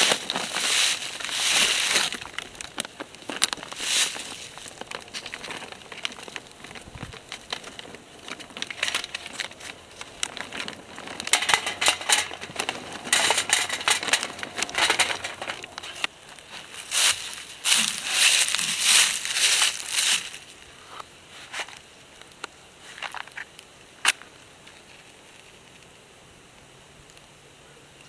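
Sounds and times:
charcoal bag rustling: 0.0 - 20.6
charcoal clattering into metal chimney: 8.4 - 16.1.

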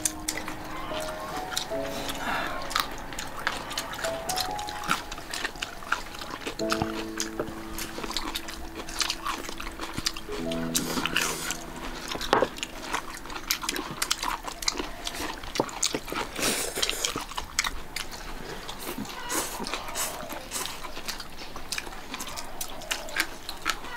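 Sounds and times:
background music held notes: 0.0 - 16.6
chewing: 0.0 - 23.9.

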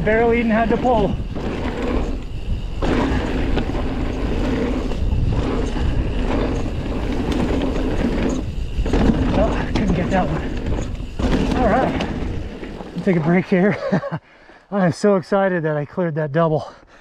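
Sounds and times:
mountain bike tyres on rocky trail: 0.0 - 15.4.

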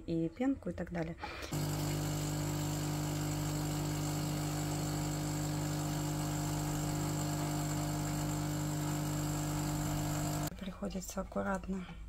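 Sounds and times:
coffee machine pump humming: 1.5 - 10.5.

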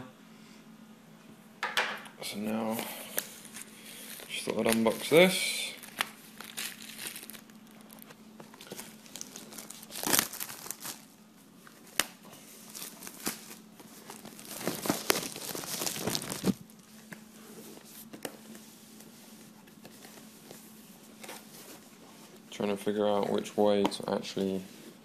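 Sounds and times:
plastic wrap crinkling and tearing: 3.2 - 18.6.

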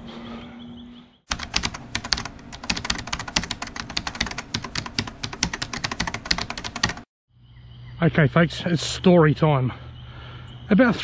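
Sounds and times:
keyboard typing clicks: 1.3 - 7.1
faint outdoor ambience: 7.3 - 11.0.

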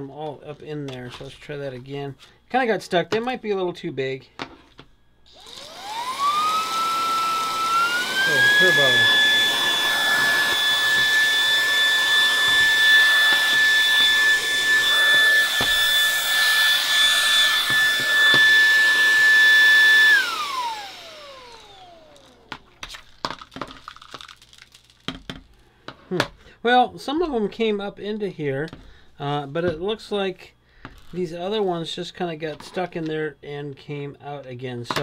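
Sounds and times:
handheld vacuum whining: 5.3 - 23.1.

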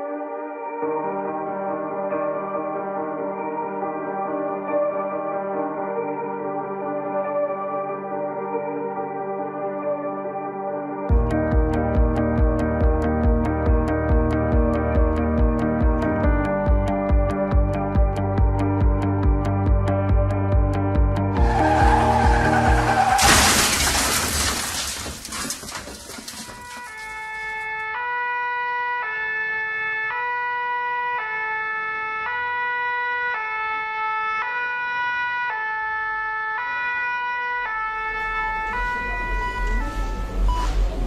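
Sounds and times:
two-tone emergency siren: 21.3 - 23.3, 26.3 - 41.0.

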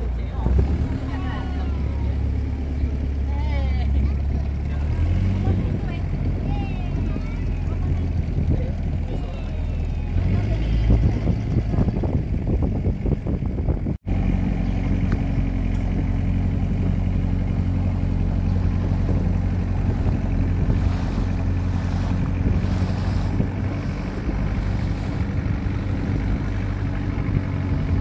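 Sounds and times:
boat engine droning: 0.0 - 28.0
water rushing past hull: 16.2 - 28.0.

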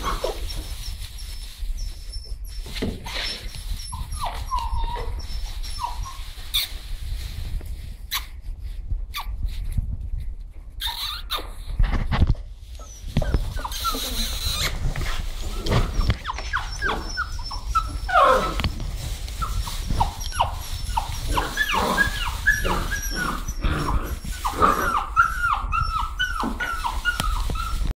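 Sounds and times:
puppies yipping and whimpering: 0.0 - 6.7, 10.8 - 11.7, 12.6 - 27.9.

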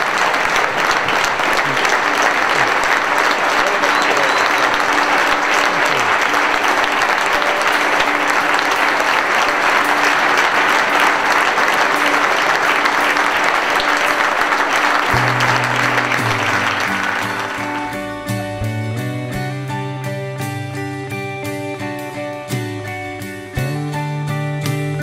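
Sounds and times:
large audience applauding: 0.0 - 18.8
music: 0.0 - 25.0.

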